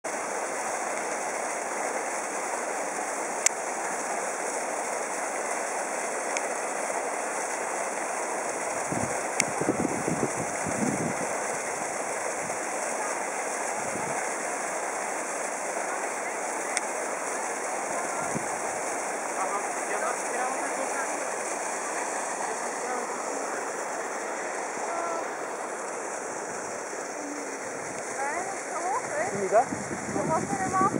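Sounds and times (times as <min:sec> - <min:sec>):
water rushing under ice: 0:00.1 - 0:30.9
low rumbling: 0:18.0 - 0:30.9.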